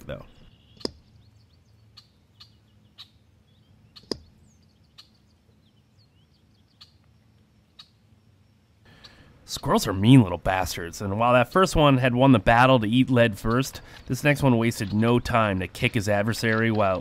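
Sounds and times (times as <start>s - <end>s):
faint bird chirps: 0.0s - 9.3s.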